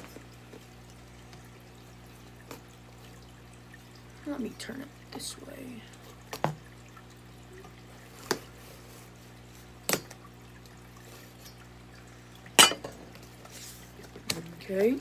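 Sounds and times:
aquarium filter hum: 0:00.0 - 0:15.0.

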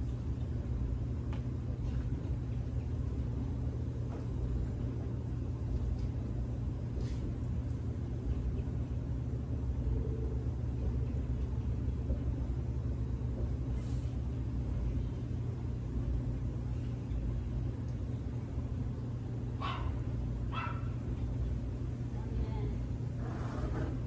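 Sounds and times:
motor low rumble: 0:00.0 - 0:24.0.

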